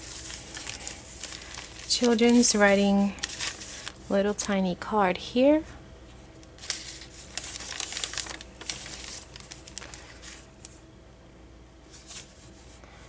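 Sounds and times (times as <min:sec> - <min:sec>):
paper rustling and crinkling: 0:00.0 - 0:04.5, 0:06.6 - 0:10.8, 0:11.9 - 0:12.8.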